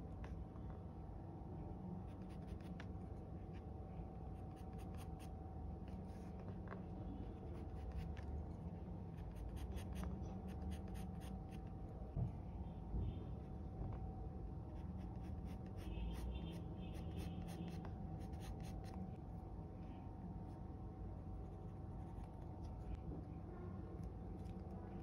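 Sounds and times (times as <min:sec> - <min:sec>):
faint steady hum: 0:00.0 - 0:25.0
pencil scratching on paper: 0:04.3 - 0:05.3, 0:07.4 - 0:08.3, 0:09.2 - 0:11.7, 0:14.7 - 0:19.0.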